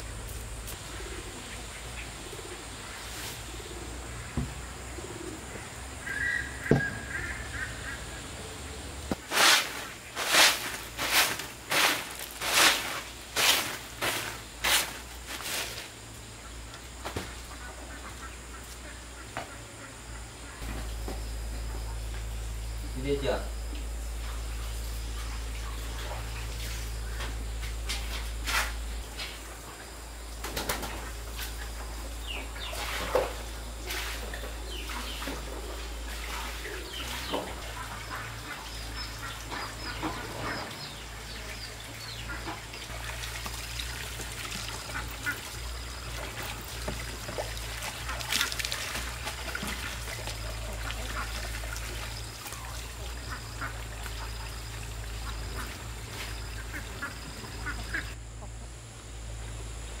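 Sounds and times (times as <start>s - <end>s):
ducks quacking: 16.4s - 20.9s, 30.9s - 42.9s, 44.6s - 46.4s, 47.4s - 58.6s.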